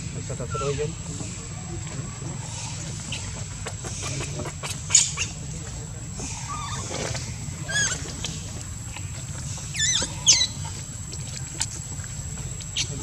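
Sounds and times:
infant monkey squealing: 0.4s - 0.9s, 6.3s - 7.0s, 7.6s - 8.1s, 9.7s - 10.7s.

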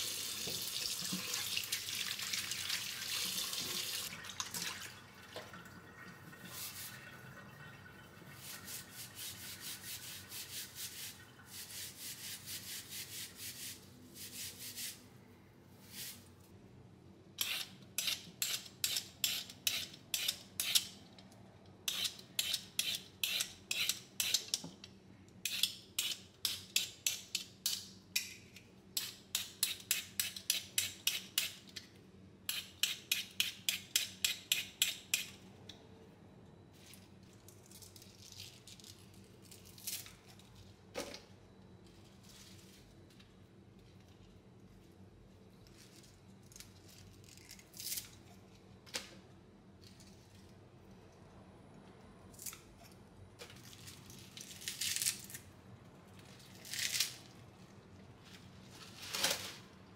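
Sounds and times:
peeler scraping a carrot: 17.4s - 20.9s, 21.9s - 24.5s.

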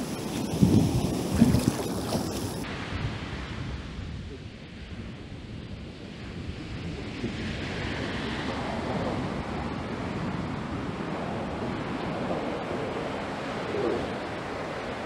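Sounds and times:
water washing: 0.0s - 2.6s
wind rushing over microphone: 0.0s - 15.0s.

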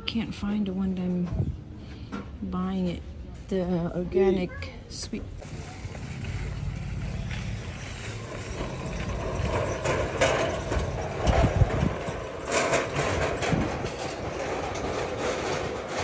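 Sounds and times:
metal cart rolling on concrete: 5.2s - 16.0s.

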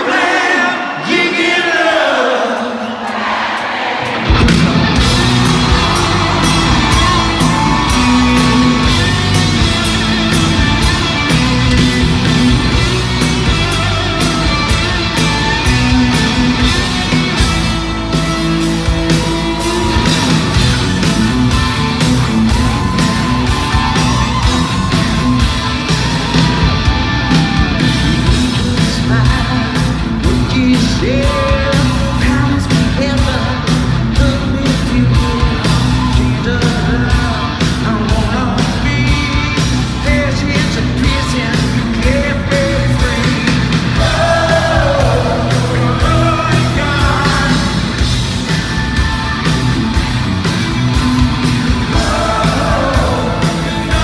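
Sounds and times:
steady drum beat: 4.0s - 54.0s
bass guitar: 4.2s - 54.0s
distorted electric guitars: 4.2s - 54.0s
man singing: 28.4s - 47.9s, 51.9s - 54.0s.

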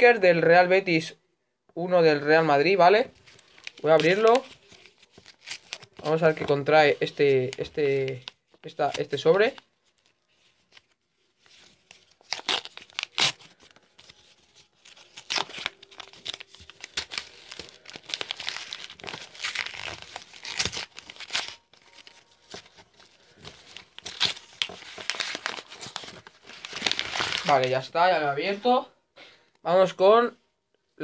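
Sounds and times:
card packet wrapper tearing: 3.2s - 6.5s, 11.6s - 27.8s.

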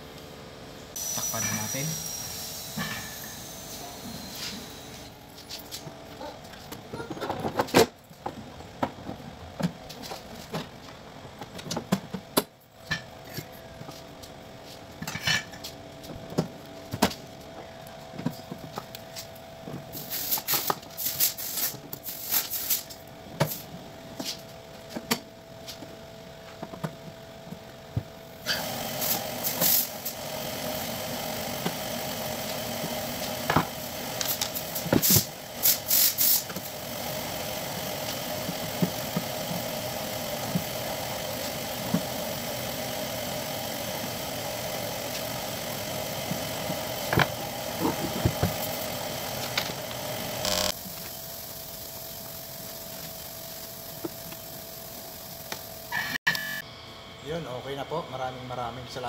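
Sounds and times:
steady hum: 0.0s - 59.0s.

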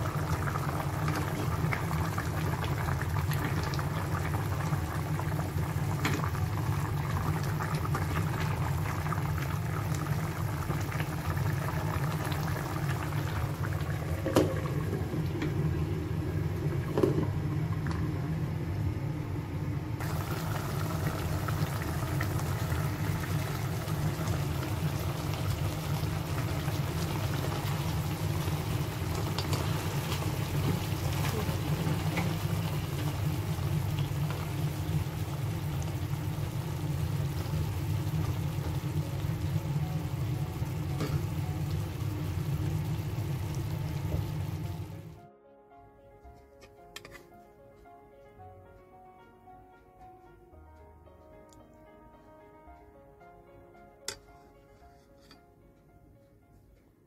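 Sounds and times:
stew bubbling in a pot: 0.0s - 18.2s, 20.0s - 44.9s.

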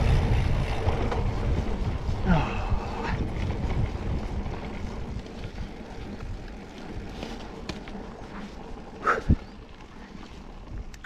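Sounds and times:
wind on microphone: 0.0s - 7.4s, 8.9s - 9.6s
bike rumbling and rattling: 0.0s - 11.0s.

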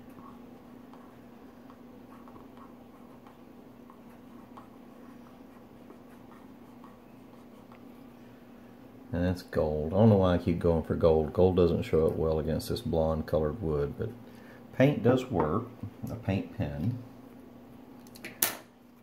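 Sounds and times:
steady low hum: 0.0s - 18.2s
marker scratching on wood: 0.1s - 7.9s.

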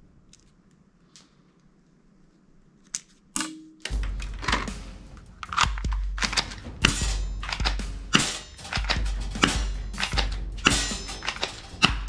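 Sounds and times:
background music: 3.4s - 12.0s.

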